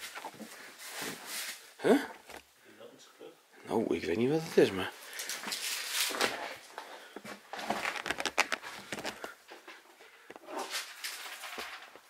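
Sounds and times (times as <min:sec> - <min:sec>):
scuffing and rustling: 0:00.0 - 0:02.5
small clicks and knocks: 0:07.6 - 0:09.7.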